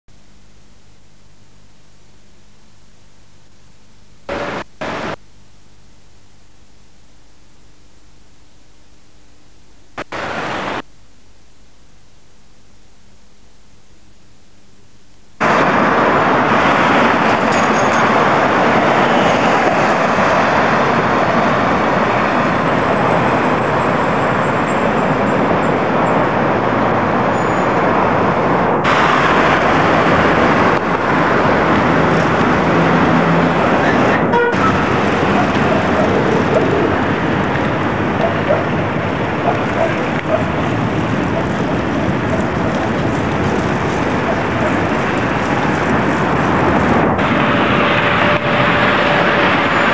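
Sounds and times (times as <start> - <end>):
faint tape hiss: 0.1 - 15.6
street traffic: 4.3 - 5.2, 15.4 - 49.9
wind on microphone: 15.4 - 49.9.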